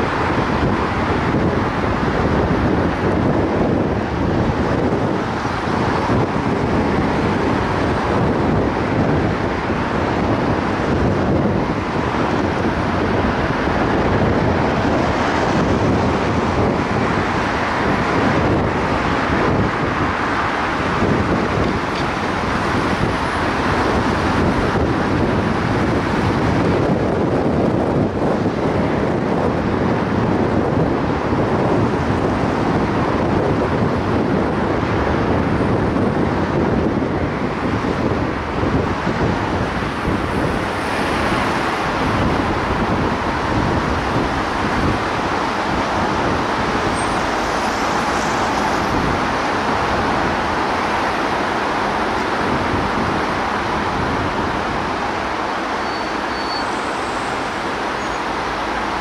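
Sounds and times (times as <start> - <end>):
car road noise: 0.0 - 59.0
wind: 0.0 - 59.0.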